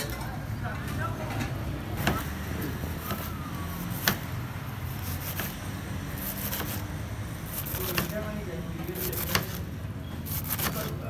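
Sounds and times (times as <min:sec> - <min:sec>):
knife chopping on plastic board: 0:02.0 - 0:04.4, 0:06.2 - 0:06.9, 0:07.5 - 0:08.2, 0:09.0 - 0:09.7, 0:10.3 - 0:11.0.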